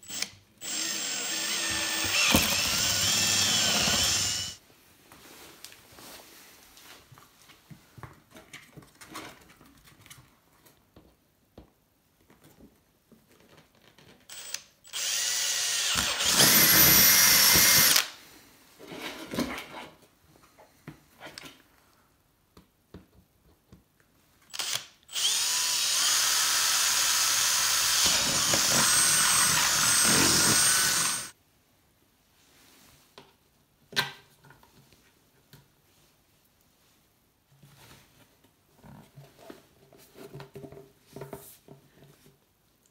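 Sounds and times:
cordless drill boring into plastic: 0.1 - 4.6, 14.3 - 18.2, 24.5 - 31.3.

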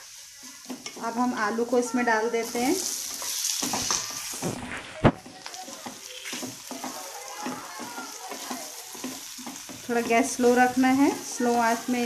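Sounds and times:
potatoes sizzling in oil: 0.0 - 12.0
spatula knocking against pan: 5.2 - 10.7.

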